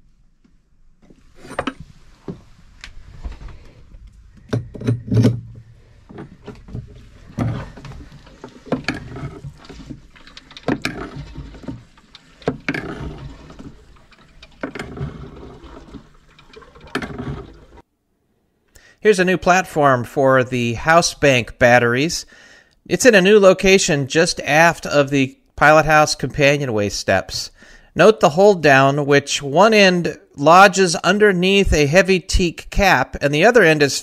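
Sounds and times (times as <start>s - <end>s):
hand diaphragm pump strokes: 1.2s - 17.8s.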